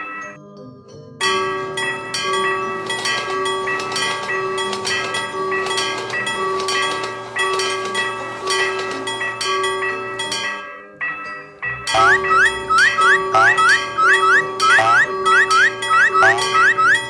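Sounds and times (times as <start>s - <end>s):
railroad crossing bell ringing: 1.2s - 17.0s
train passing: 11.9s - 17.0s.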